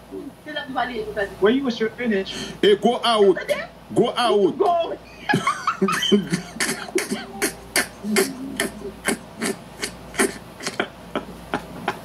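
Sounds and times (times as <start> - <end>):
low vocal sounds: 6.6 - 10.9.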